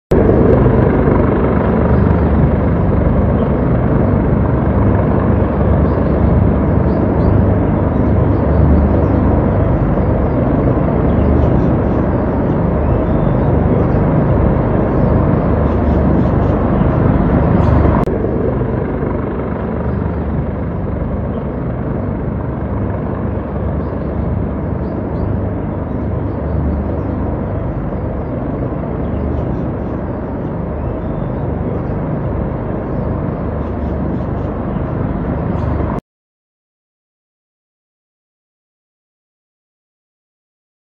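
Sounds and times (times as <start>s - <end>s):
helicopter rotor and engine: 0.1s - 36.0s.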